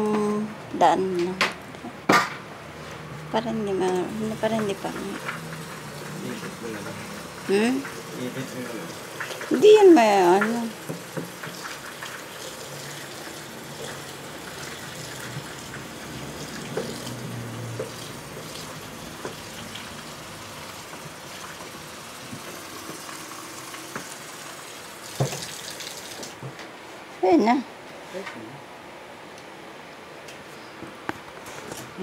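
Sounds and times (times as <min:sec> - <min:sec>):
faucet water running into sink: 0:04.1 - 0:26.4.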